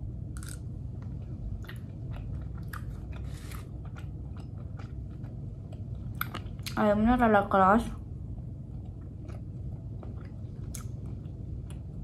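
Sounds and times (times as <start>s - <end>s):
low steady hum: 0.0s - 12.0s
close-up chewing: 1.1s - 6.8s, 8.7s - 12.0s.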